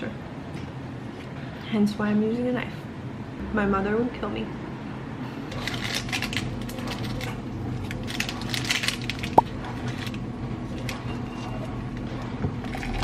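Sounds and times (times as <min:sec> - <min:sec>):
paper crinkling and rustling: 0:05.6 - 0:11.5.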